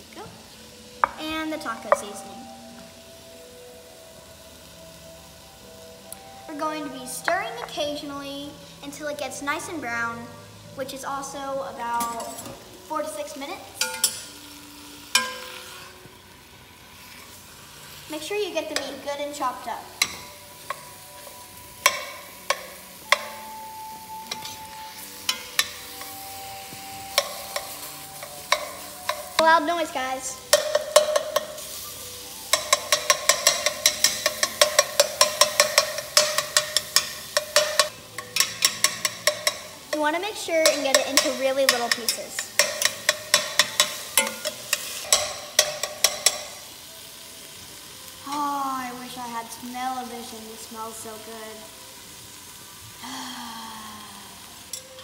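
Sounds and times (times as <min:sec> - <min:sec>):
frying sizzle: 0:00.0 - 0:55.0
girl's voice: 0:01.2 - 0:02.4, 0:06.5 - 0:13.8, 0:18.1 - 0:19.9, 0:29.4 - 0:30.4, 0:40.0 - 0:42.4, 0:48.2 - 0:51.7
spatula knocking on a pot: 0:30.5 - 0:31.6, 0:32.5 - 0:39.7, 0:40.6 - 0:46.5.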